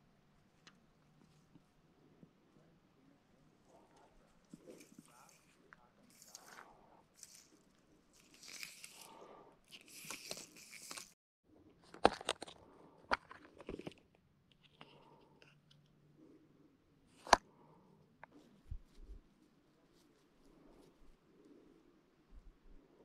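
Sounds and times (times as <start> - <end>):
soft rustling: 3.3 - 11.2, 18.3 - 22.8
plastic box clicking and rattling: 11.8 - 14.0.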